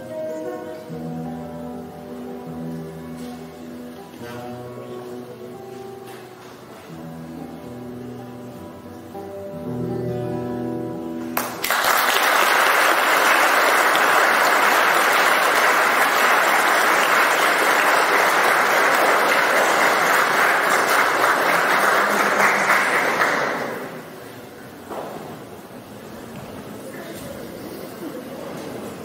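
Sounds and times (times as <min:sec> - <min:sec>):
audience applause: 0:11.4 - 0:24.4.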